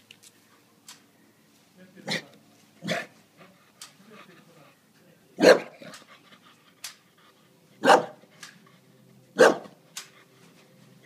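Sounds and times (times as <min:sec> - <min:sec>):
dog huffing and panting: 0:02.9 - 0:04.9, 0:05.8 - 0:11.0
dog barking: 0:05.4 - 0:05.8, 0:07.8 - 0:08.2, 0:09.4 - 0:09.8.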